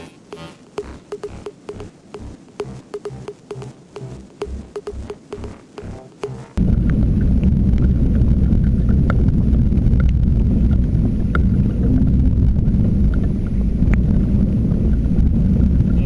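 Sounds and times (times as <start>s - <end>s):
faint ticks: 0.0s - 7.0s
wind buffeting microphone: 6.6s - 16.0s.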